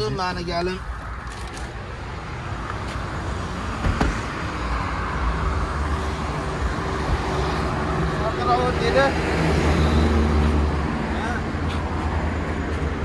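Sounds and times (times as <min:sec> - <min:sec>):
highway traffic rushing: 0:00.0 - 0:13.0
sharp knock: 0:03.8 - 0:04.3.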